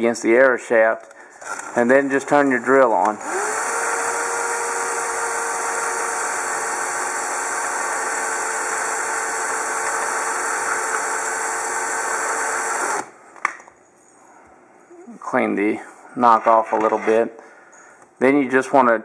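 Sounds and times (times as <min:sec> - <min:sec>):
power drill sanding plastic: 0:01.5 - 0:13.1.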